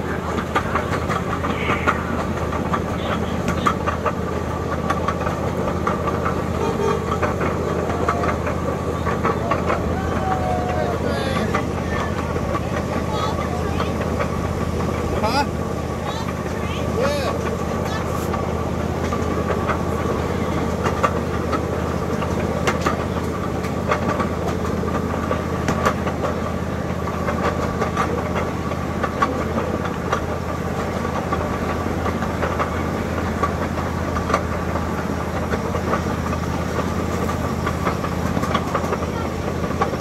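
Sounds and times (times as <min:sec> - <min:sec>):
miniature train engine drone: 0:00.0 - 0:40.0
wheels clicking and clacking: 0:00.0 - 0:40.0.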